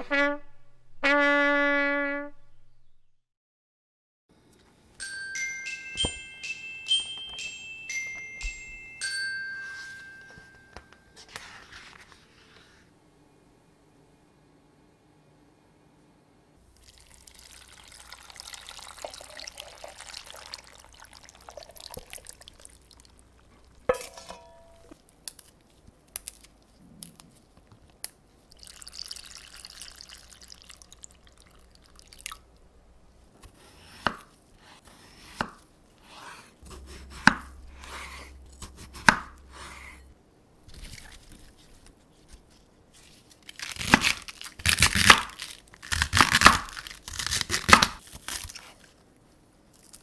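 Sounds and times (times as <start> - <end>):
thick liquid pouring into bowl: 16.8 - 23.8, 28.5 - 32.5
water pouring into glass bowl: 16.8 - 23.8, 28.5 - 32.5
metallic clink with ringing: 23.9 - 24.9
knife crunching through cabbage: 40.7 - 49.0.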